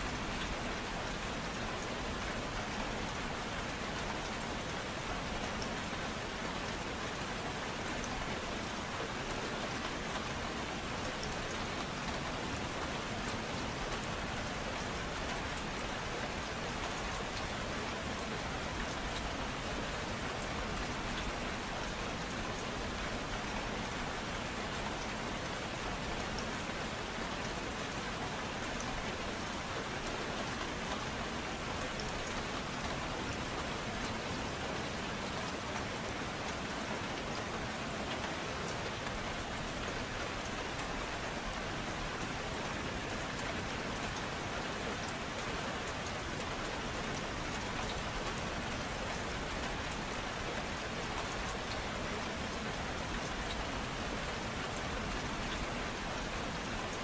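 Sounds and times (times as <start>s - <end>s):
gentle rain falling: 0.0s - 57.0s.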